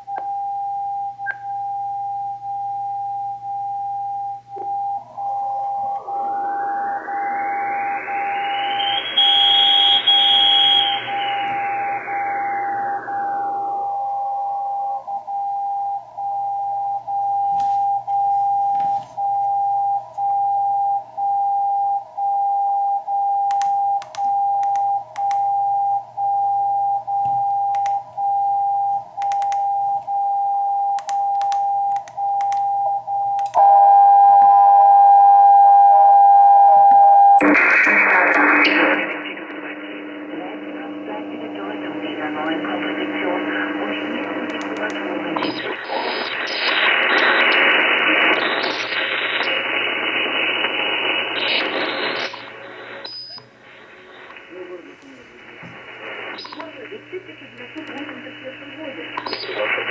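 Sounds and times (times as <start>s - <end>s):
pulsing radio beat tone: 1.0s - 22.0s, 37.2s - 59.9s
radio receiver hiss: 4.4s - 15.4s, 37.4s - 59.9s.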